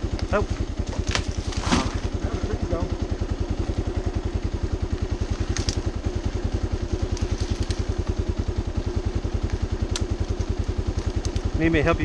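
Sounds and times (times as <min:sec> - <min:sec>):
motorcycle engine idling: 0:00.0 - 0:12.0
light clicks: 0:09.4 - 0:11.6.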